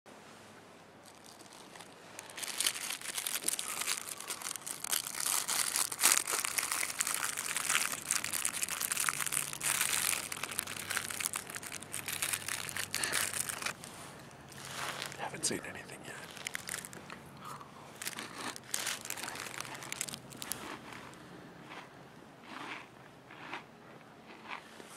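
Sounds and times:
plastic wrapper crinkling: 1.0s - 17.2s, 17.9s - 21.1s.

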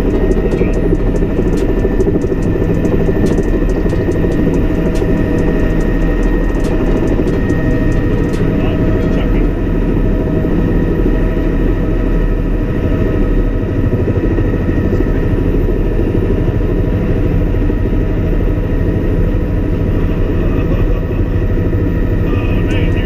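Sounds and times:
helicopter turbine and rotor noise: 0.0s - 23.0s.

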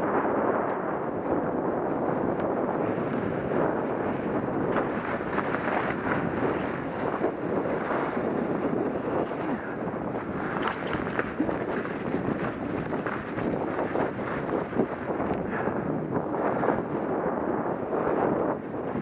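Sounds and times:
dog sled gliding over snow: 0.0s - 19.0s
wind buffeting microphone: 0.0s - 19.0s.

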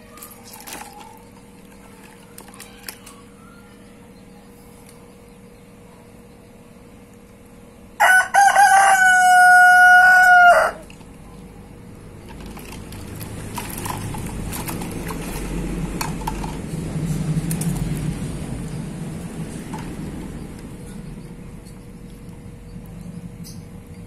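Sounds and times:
light clicks and splashes: 0.1s - 3.2s
rooster crowing: 8.0s - 10.9s
low rumble: 11.2s - 24.0s.

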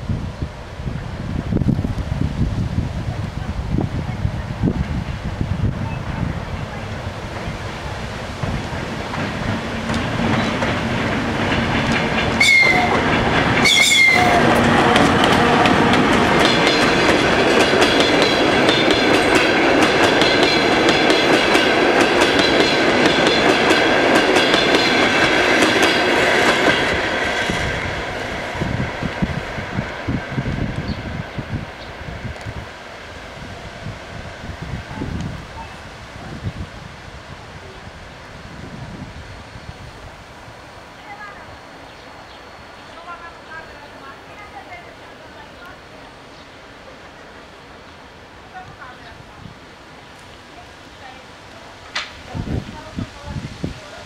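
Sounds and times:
train passing: 0.0s - 54.0s
wheels clicking over rail joints: 8.3s - 26.8s
wheels squealing on track: 12.4s - 15.0s.

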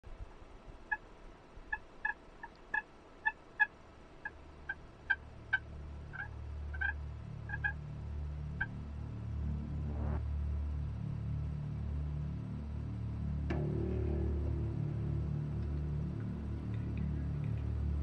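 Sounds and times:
turkey clucking: 1.7s - 7.8s
low rumble: 4.4s - 18.0s.

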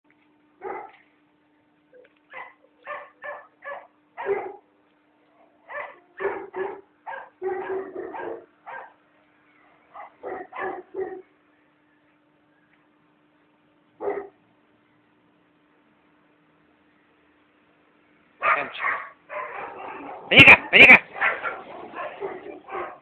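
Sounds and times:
faint steady hum: 0.1s - 23.0s
dog barking: 0.6s - 1.0s, 2.3s - 4.7s, 5.7s - 9.0s, 10.0s - 11.3s, 14.0s - 14.4s, 18.4s - 20.4s, 21.0s - 23.0s.

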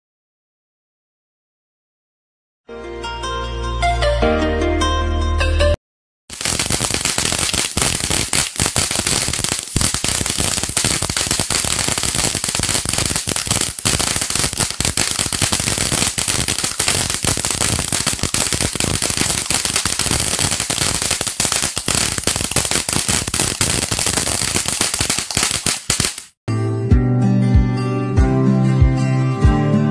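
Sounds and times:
firework torch crackling hiss: 6.3s - 26.4s.

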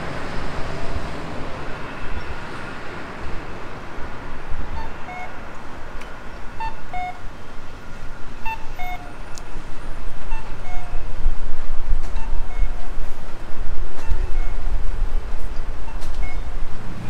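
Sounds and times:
low street rumble: 0.0s - 17.0s.

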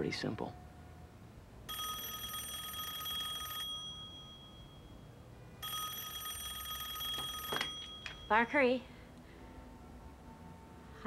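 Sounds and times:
telephone ringing: 1.7s - 8.5s.

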